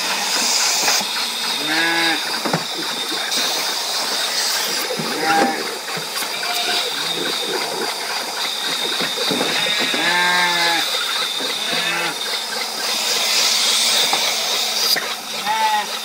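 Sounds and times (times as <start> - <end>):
milking machine hissing: 0.0 - 16.0
sheep bleating: 5.1 - 7.3, 9.6 - 10.9, 11.6 - 12.2, 15.4 - 15.9.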